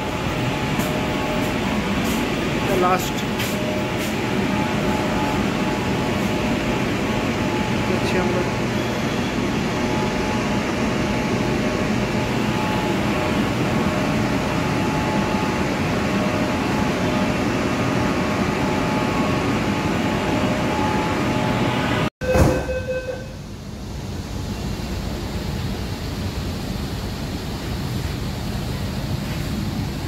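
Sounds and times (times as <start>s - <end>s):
train hum with whining tones: 0.0s - 30.0s
short pitched tone: 8.7s - 10.4s, 21.9s - 23.4s.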